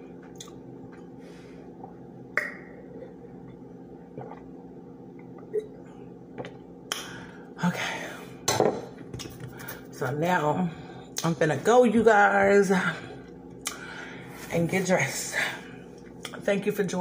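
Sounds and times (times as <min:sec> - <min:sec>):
low hum: 0:00.0 - 0:17.0
person sipping and swallowing: 0:00.2 - 0:07.1.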